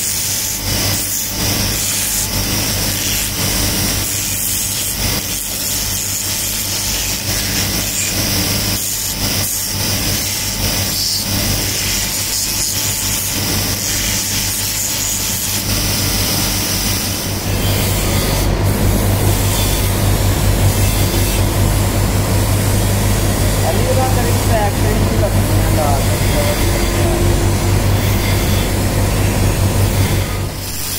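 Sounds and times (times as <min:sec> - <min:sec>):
rasping hiss of grinding: 0:00.0 - 0:30.9
grinding wheel motor humming: 0:06.8 - 0:30.9.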